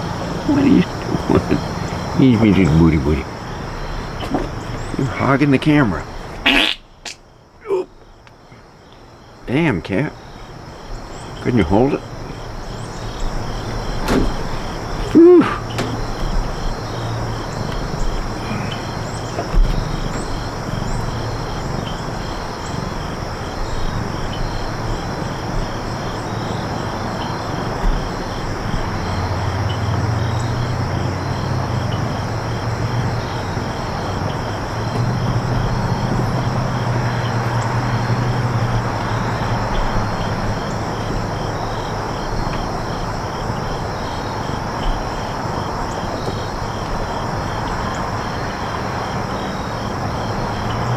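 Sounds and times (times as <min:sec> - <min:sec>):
constant rushing background: 0:00.0 - 0:50.9
insects chirping: 0:00.0 - 0:50.9
low engine drone: 0:10.8 - 0:41.8.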